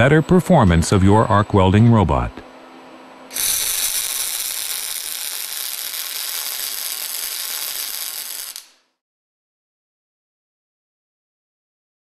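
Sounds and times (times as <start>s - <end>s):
welding arc hissing: 3.3s - 8.9s.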